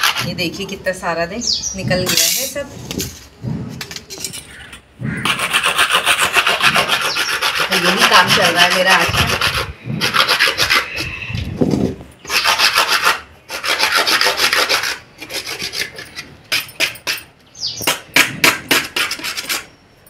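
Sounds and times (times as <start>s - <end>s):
sandpaper rasping on clay pot: 0.0s - 0.8s, 5.2s - 11.4s, 12.2s - 17.3s, 18.4s - 19.7s.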